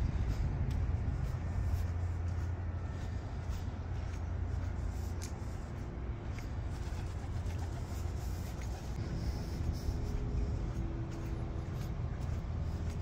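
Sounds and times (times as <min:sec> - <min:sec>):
faint engine hum: 0:00.0 - 0:13.0
low rumble of street traffic: 0:00.0 - 0:13.0.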